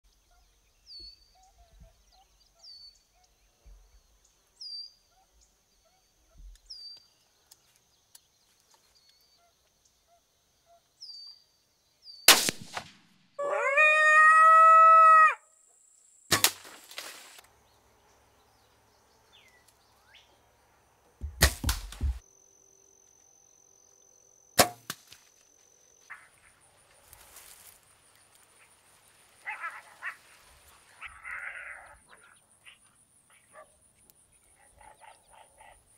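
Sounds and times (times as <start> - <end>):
sharp cracks: 12.3 - 13.3, 16.3 - 17.4, 21.2 - 22.2, 24.6 - 25.3
coyote howl: 13.4 - 15.5, 29.4 - 30.3, 30.9 - 32.4.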